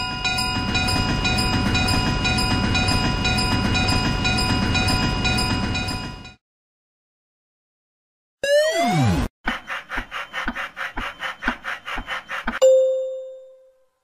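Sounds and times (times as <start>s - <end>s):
train passing rumble: 0.0s - 6.4s
crossing bell dinging: 12.6s - 13.8s.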